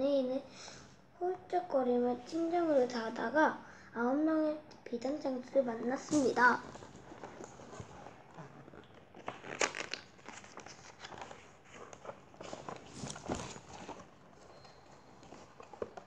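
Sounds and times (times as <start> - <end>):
paper rustling: 5.8 - 16.0
sharp page flicks: 9.2 - 11.4.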